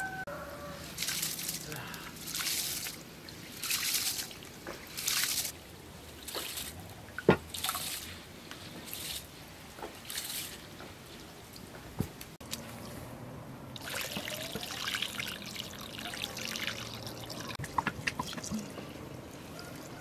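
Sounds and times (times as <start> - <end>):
water trickling and splashing on ground: 0.7 - 13.1, 13.7 - 20.0
water poured into bowl: 13.8 - 18.8.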